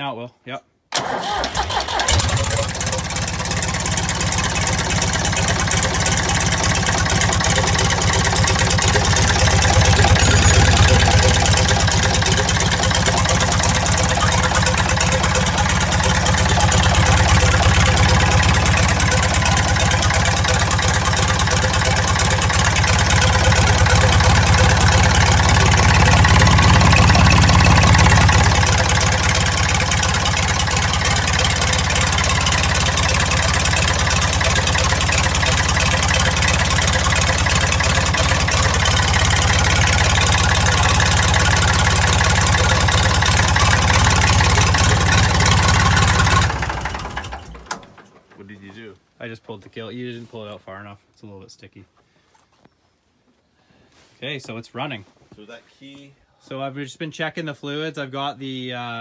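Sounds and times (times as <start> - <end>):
diesel engine idling: 1.0 - 48.0.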